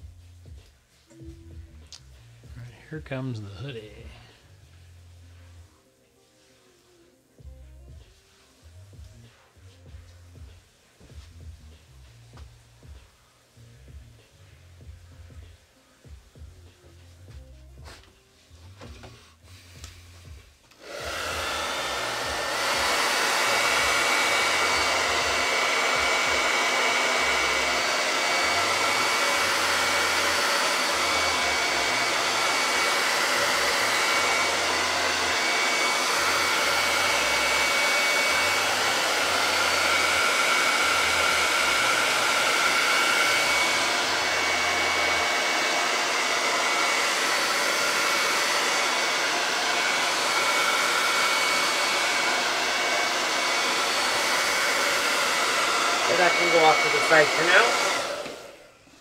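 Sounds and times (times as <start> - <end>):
hair dryer blowing: 18.8 - 59.0.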